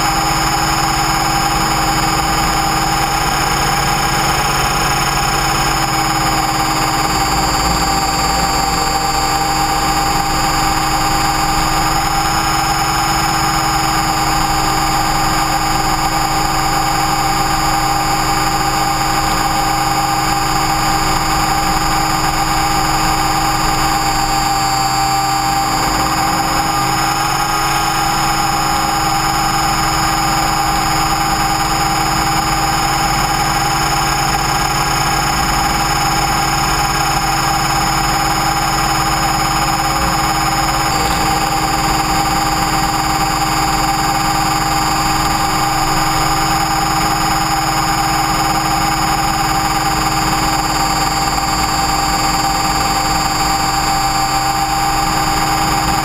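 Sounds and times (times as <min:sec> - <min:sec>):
rc helicopter motor whine: 0:00.0 - 0:56.0
rotor rumble: 0:01.7 - 0:29.8, 0:39.3 - 0:56.0.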